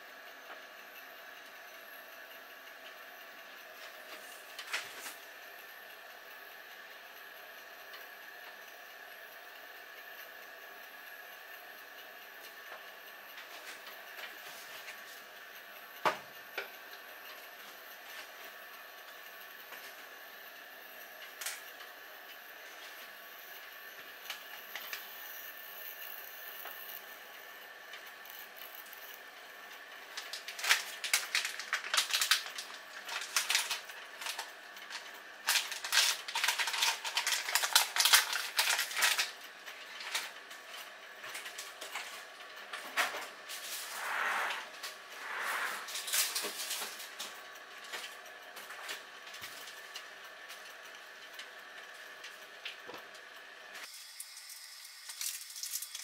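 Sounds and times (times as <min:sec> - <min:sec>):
steaming pot crackling and rattling: 0:00.0 - 0:56.0
stove burning with faint hiss: 0:00.0 - 0:56.0.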